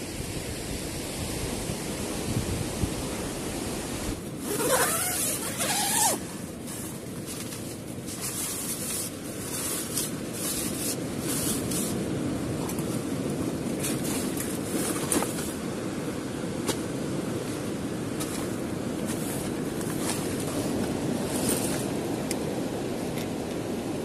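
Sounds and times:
wind: 0.0 - 24.0
tent fabric rustling: 4.2 - 15.6, 18.1 - 22.0
tent zipper opening: 4.4 - 13.0, 13.8 - 15.6, 18.2 - 21.9.

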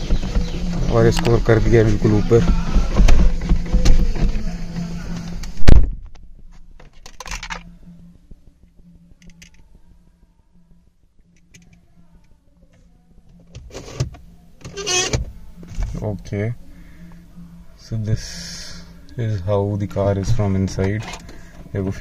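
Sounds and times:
faint steady hum: 0.0 - 22.0
loud thump: 5.6 - 6.1
clicks and rustles of car controls: 13.3 - 16.0.

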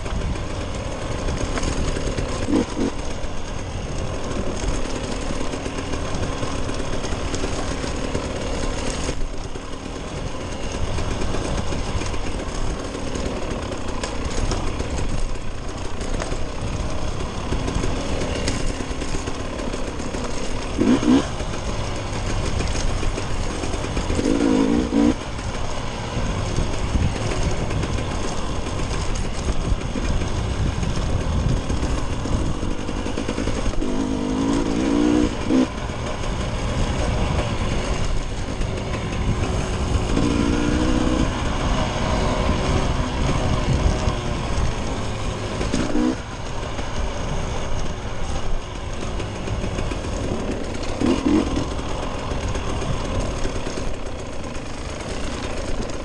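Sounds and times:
dirt bike engine revving: 0.0 - 56.0
wind rumble on microphone: 20.7 - 54.0.

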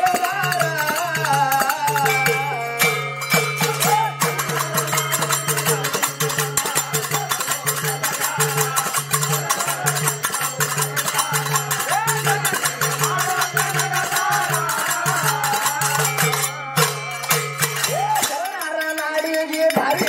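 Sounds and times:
men singing: 0.0 - 20.0.

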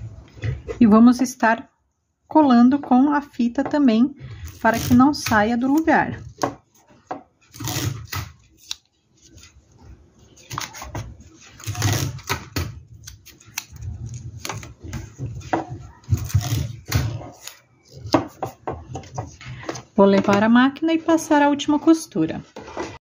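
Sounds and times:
tape ripping: 7.5 - 9.5, 11.5 - 14.7.

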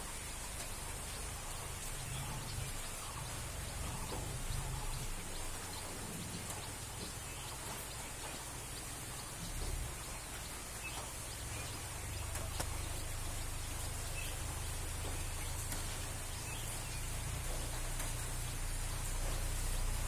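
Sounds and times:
even hiss: 0.0 - 20.0
low rumble: 0.1 - 20.0
faint clicks: 0.2 - 19.6.

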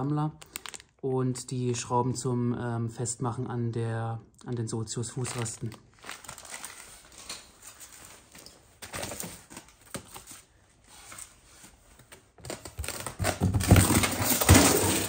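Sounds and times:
packaging rustling: 0.4 - 1.0, 5.2 - 15.0.

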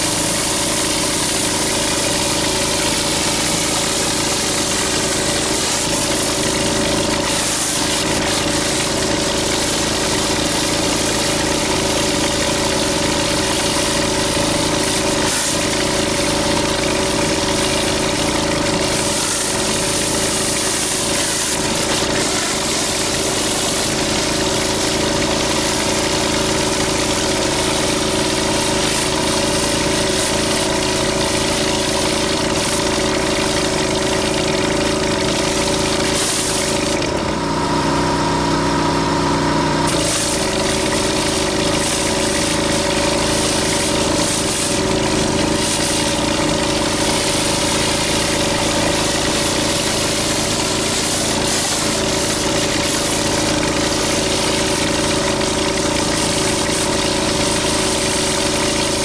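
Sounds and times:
high-pressure water hissing on concrete: 0.0 - 59.0
pressure washer engine running: 0.0 - 59.0.

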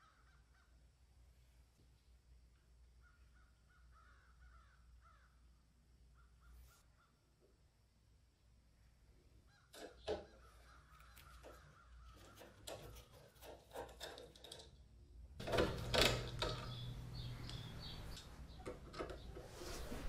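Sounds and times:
screws clicking and squeaking: 9.8 - 14.8, 15.4 - 19.5
screws scraping and creaking: 11.0 - 14.8.

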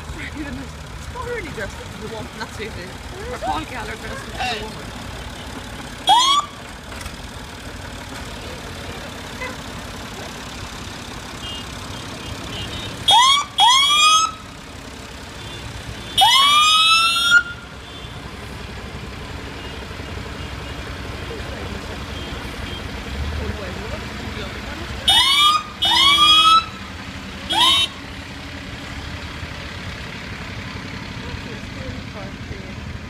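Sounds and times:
emergency siren whooping: 6.0 - 6.6, 13.1 - 14.6, 16.2 - 17.7, 25.0 - 26.8, 27.5 - 28.0.

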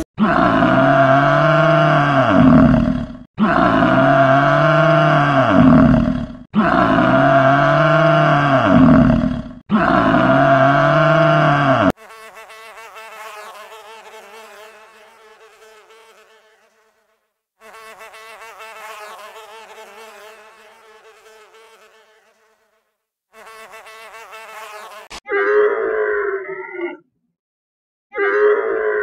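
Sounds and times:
low animal bellow: 0.2 - 11.9
flying insect buzzing: 11.9 - 25.2.

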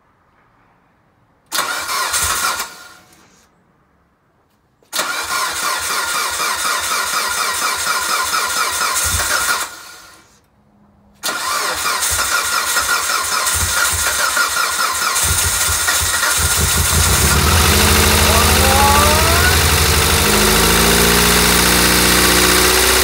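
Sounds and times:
starter cranking engine: 4.9 - 10.2, 11.2 - 23.0
car engine running: 15.4 - 23.0.

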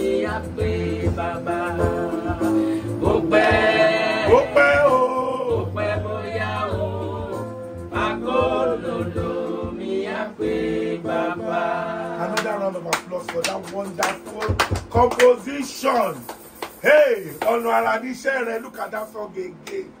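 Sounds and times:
men singing gospel: 0.0 - 14.3
electronic keyboard chords: 0.0 - 19.2.

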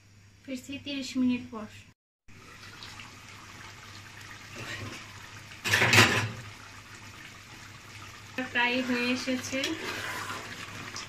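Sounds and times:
curry bubbling in a pot: 2.3 - 11.0.

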